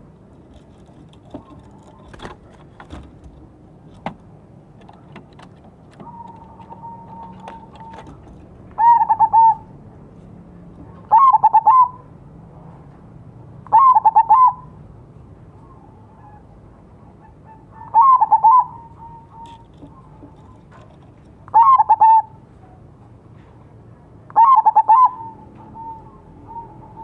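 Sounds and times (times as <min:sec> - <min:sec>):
dove cooing: 0:05.9 - 0:09.8, 0:10.8 - 0:12.1, 0:13.7 - 0:14.8, 0:15.6 - 0:22.9, 0:24.3 - 0:27.0.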